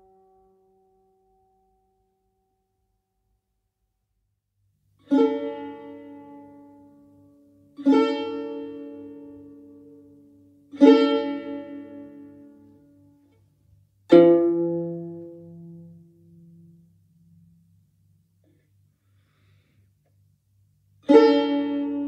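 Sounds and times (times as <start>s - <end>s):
long-necked lute plucked notes: 0.0s - 2.2s, 5.0s - 18.2s, 20.9s - 22.0s.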